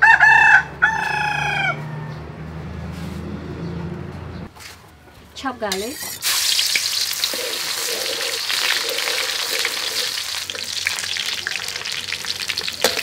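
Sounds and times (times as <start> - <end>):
garlic sizzling in hot oil: 5.7 - 13.0.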